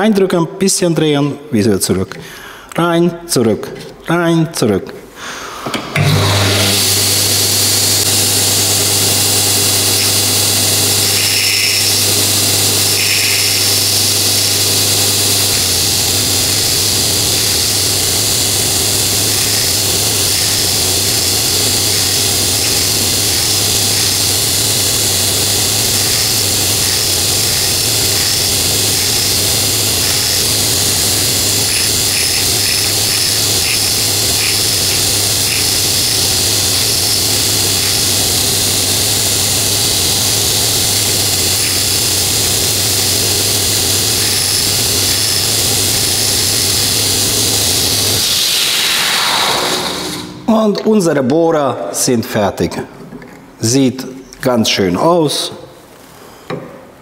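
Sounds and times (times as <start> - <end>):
belt grinder humming: 5.8 - 50.5
drill bit grinding on belt: 6.0 - 50.4.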